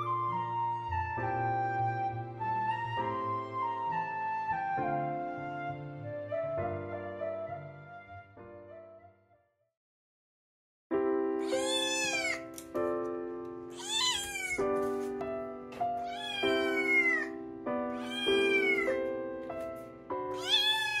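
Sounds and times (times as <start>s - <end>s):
background music of held chords: 0.0s - 9.0s, 11.0s - 21.0s
kitten meowing: 11.4s - 12.5s, 13.7s - 14.7s, 16.0s - 19.0s, 20.3s - 21.0s.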